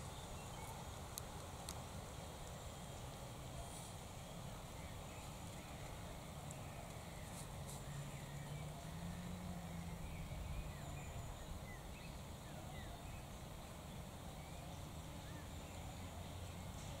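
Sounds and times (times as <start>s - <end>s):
low steady hum: 0.0s - 17.0s
wind rumble on microphone: 4.5s - 16.8s.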